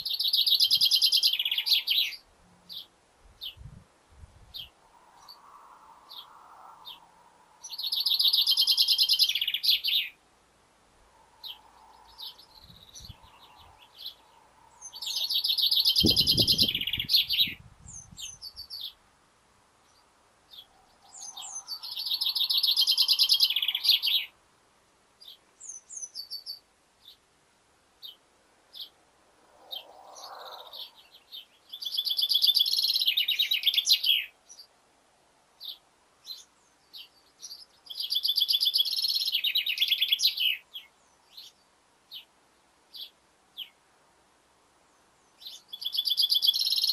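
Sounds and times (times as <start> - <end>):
chaffinch singing trills: 0.0 - 3.6, 6.1 - 10.2, 11.4 - 19.0, 19.9 - 24.4, 25.2 - 27.2, 29.7 - 34.7, 35.6 - 42.3, 44.9 - 46.9.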